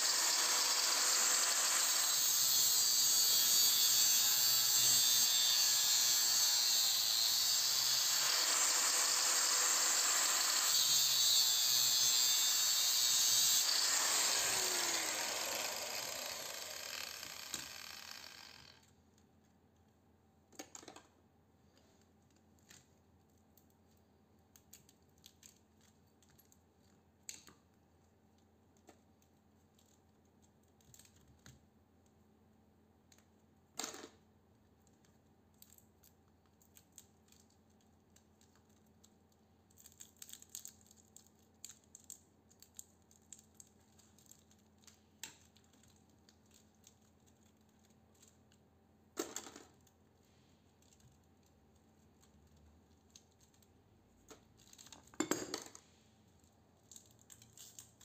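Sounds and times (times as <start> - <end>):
angle grinder cutting metal: 0.0 - 18.8.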